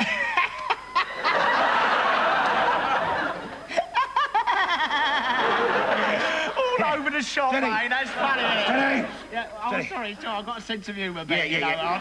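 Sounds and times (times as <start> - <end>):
man giggling: 0.0 - 1.1, 3.6 - 6.8
audience laughter: 0.0 - 6.8, 8.0 - 9.3.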